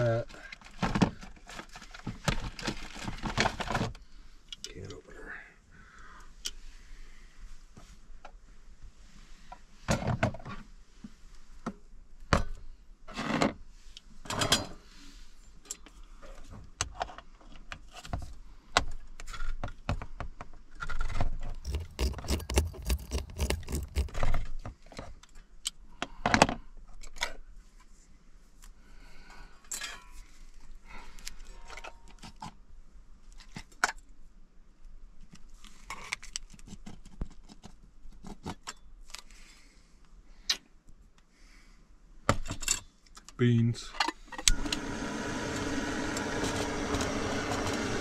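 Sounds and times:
can opener clicking: 21.6 - 24.2, 45.5 - 48.0.

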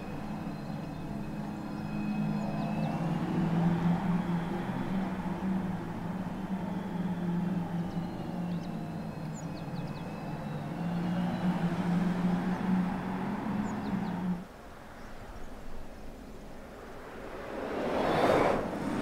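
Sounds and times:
electric drive hum: 0.0 - 14.5
birds chirping: 0.0 - 16.7.

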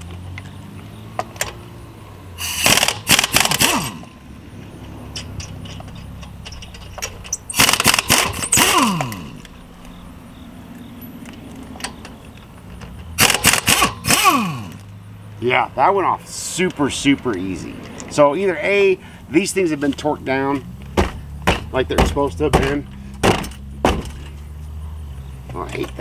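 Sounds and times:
impact wrench hammering: 2.4 - 4.1, 6.8 - 9.4, 13.2 - 14.8, 21.0 - 24.2.

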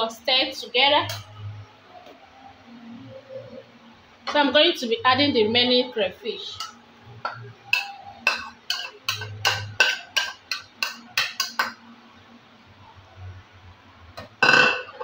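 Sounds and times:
metal clattering on steel pot: 7.3 - 11.8
metal spoon clinking on ceramic bowl: 7.7 - 11.8.

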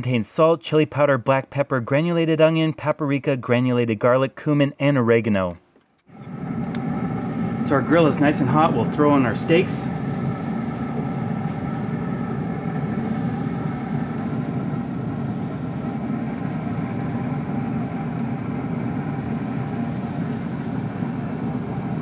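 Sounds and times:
faint whine: 6.1 - 22.0
outdoor grill humming: 6.1 - 22.0.

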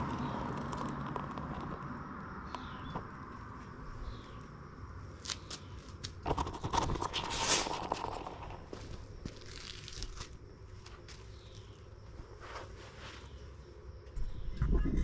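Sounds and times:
crackling clicks of burning foam: 0.0 - 3.0, 5.2 - 11.2.

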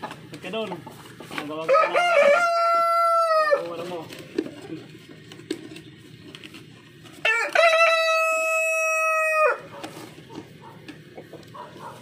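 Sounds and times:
rooster crowing: 1.6 - 3.7, 7.2 - 9.8.

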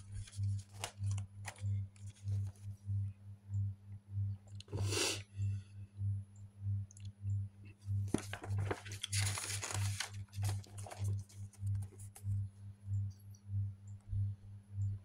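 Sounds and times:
paper page turning: 0.0 - 2.7, 8.1 - 12.2
low pulsing hum: 0.0 - 15.0.

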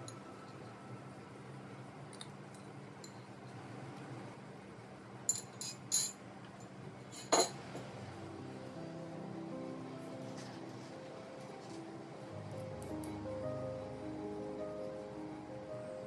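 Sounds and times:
metal utensils clinking on plate: 7.2 - 7.6.

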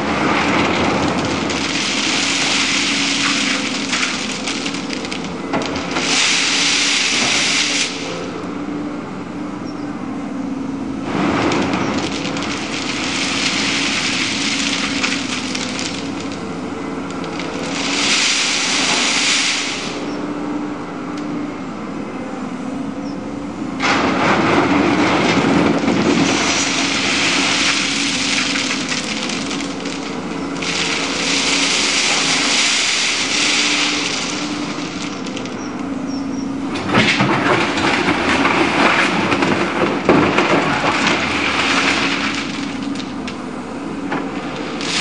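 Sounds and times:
bucket crunching ballast stones: 0.0 - 8.1, 11.1 - 20.2, 23.8 - 35.7, 44.2 - 45.0
diesel engine running: 0.0 - 45.0.

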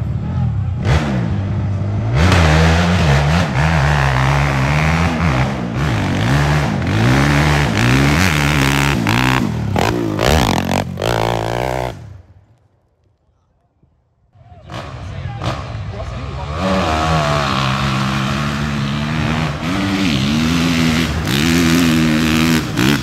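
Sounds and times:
dirt bike engine revving: 0.8 - 12.3, 14.7 - 23.0.

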